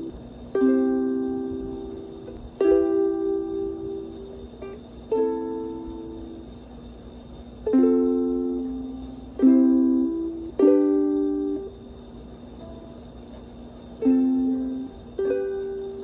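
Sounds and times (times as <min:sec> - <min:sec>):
ukulele strums: 0:00.0 - 0:06.4, 0:07.6 - 0:11.8, 0:14.0 - 0:16.0.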